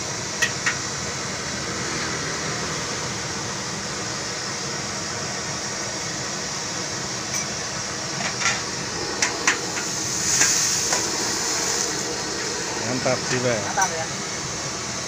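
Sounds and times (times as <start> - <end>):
food sizzling in wok: 5.9 - 15.0.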